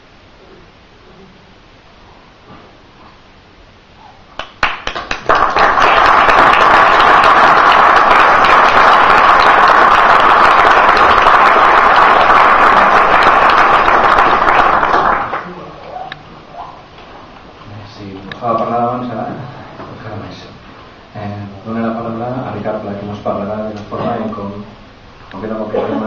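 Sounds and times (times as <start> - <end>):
audience applause: 4.4 - 15.8.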